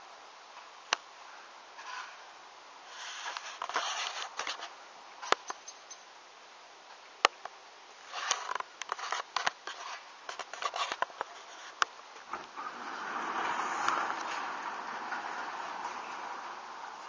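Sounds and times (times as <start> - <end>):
light clicks and rustles: 2.9 - 6.0, 6.9 - 17.0
motorised door rolling up: 12.2 - 17.0.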